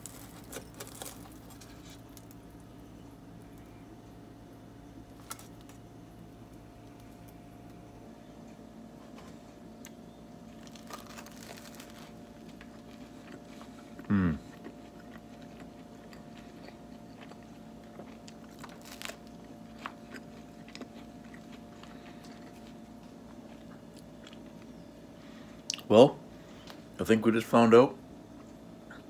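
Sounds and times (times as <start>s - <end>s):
crusty bread crunching: 0.0s - 4.0s, 4.7s - 7.9s, 9.1s - 24.7s
person chewing sandwich: 0.0s - 4.0s, 5.0s - 7.8s, 9.0s - 25.9s
faint steady hum: 0.0s - 29.0s.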